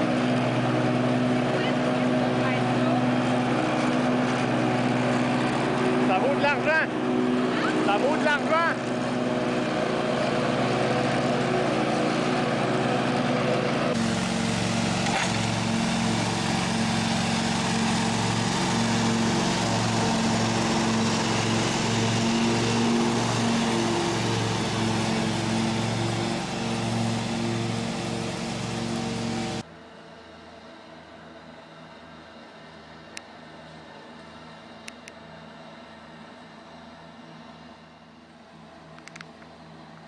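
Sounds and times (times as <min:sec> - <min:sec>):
lawn tractor engine running: 0:00.0 - 0:29.6.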